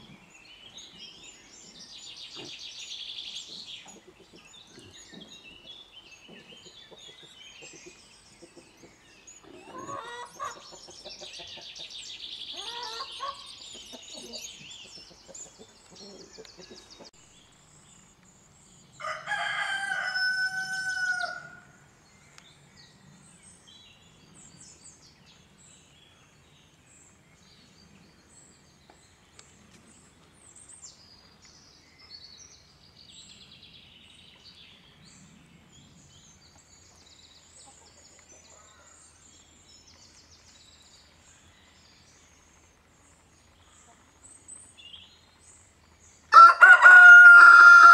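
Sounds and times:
birds high piping calls: 0:00.0 - 0:17.1
rooster crowing: 0:19.0 - 0:21.7, 0:46.3 - 0:47.9.

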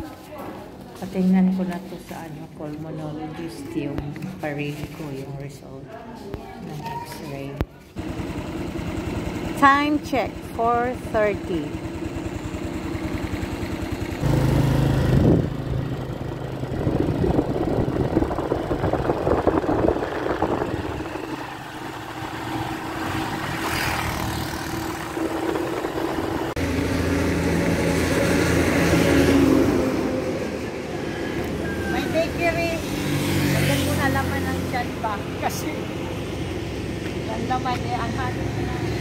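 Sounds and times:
scooter engine running: 0:07.8 - 0:39.0
wind and road noise: 0:14.0 - 0:39.0.

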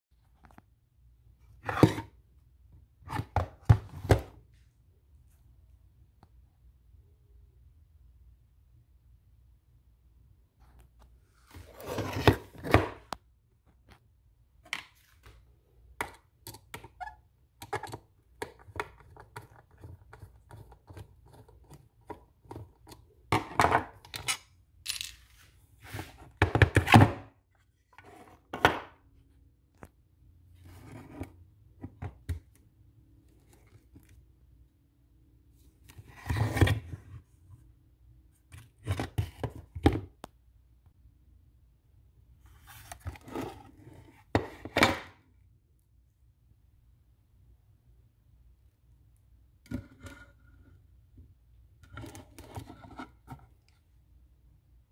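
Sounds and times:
plastic parts clattering: 0:24.0 - 0:25.5.

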